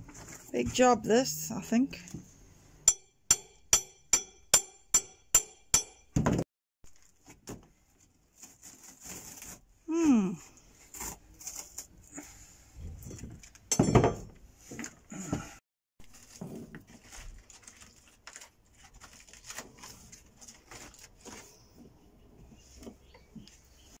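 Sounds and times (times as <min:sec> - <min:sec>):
chipboard scraping and crumbling: 0:08.3 - 0:09.7, 0:16.0 - 0:21.7.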